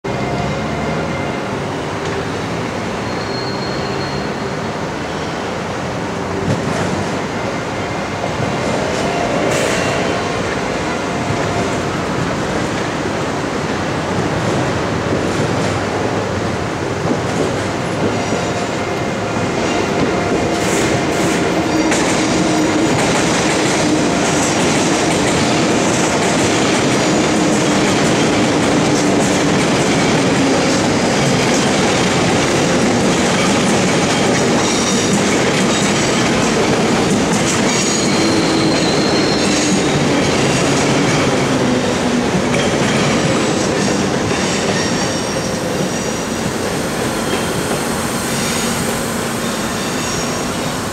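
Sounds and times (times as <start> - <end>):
train wheels rumbling on rails: 0.1 - 50.9
wheel squeal: 3.0 - 4.5, 37.8 - 39.9
train clattering: 19.4 - 50.9.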